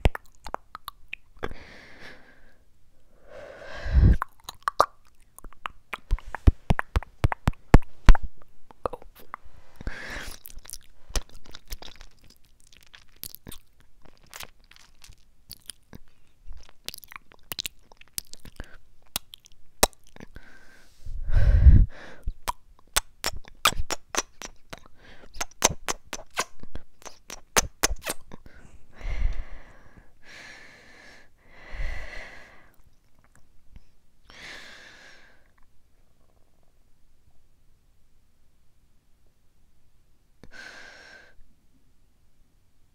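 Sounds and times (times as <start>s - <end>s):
wet mouth clicks and lip pops: 0.0s - 1.5s, 4.1s - 9.4s, 10.3s - 20.4s, 22.3s - 28.4s, 32.8s - 33.5s
breathy puffs of air on microphone: 3.4s - 4.2s, 20.5s - 22.2s.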